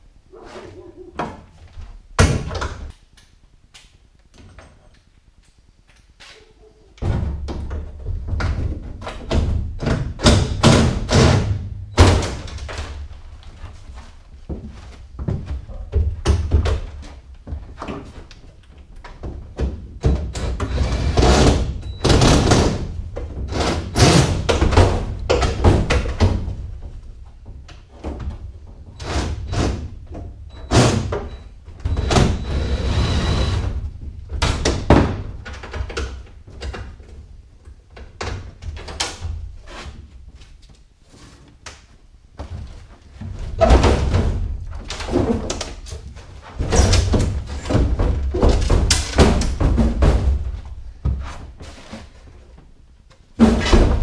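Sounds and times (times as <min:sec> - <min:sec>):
aluminum panels knocking and clanking: 0:07.0 - 0:13.0, 0:43.3 - 0:51.2.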